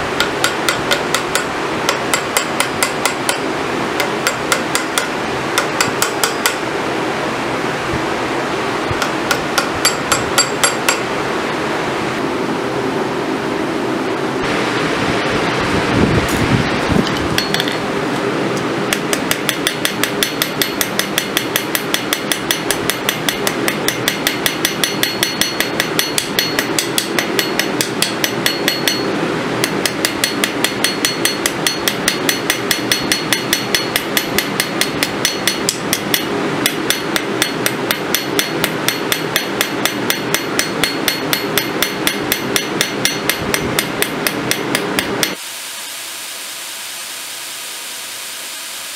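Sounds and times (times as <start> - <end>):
hammer striking metal on anvil: 0.0 - 6.6, 9.0 - 11.1, 17.1 - 17.9, 18.9 - 45.4
steady rushing noise: 0.0 - 39.0.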